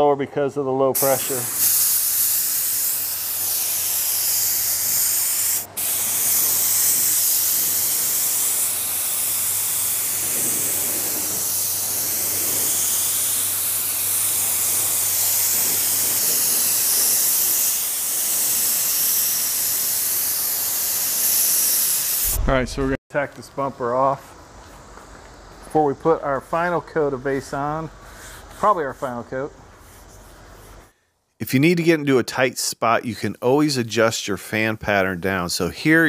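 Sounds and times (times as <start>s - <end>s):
paint spray gun hissing: 1.0s - 22.6s, 23.8s - 30.9s.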